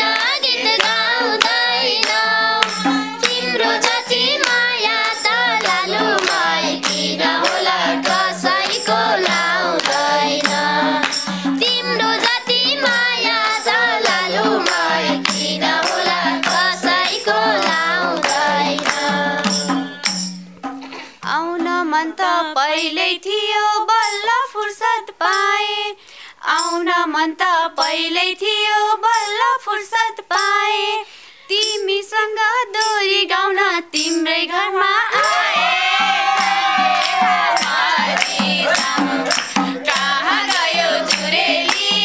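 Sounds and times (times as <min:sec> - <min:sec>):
group singing folk song: 0:00.0 - 0:20.3, 0:34.8 - 0:42.0
women singing with vibrato: 0:00.0 - 0:20.3, 0:21.2 - 0:42.0
hand clapping: 0:00.0 - 0:20.8, 0:35.2 - 0:42.0.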